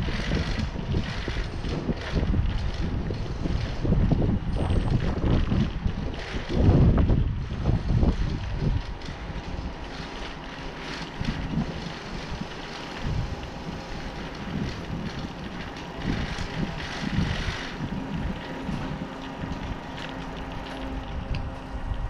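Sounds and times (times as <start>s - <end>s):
bicycle rumbling over brick pavement: 0.0s - 22.0s
wind buffeting microphone: 0.0s - 22.0s.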